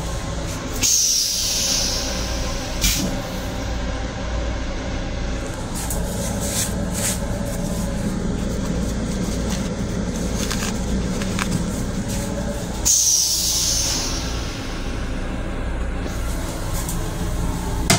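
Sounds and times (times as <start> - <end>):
rail car rumbling: 0.0 - 17.9
toilet flushing with loud hiss: 0.6 - 3.8, 11.8 - 17.9.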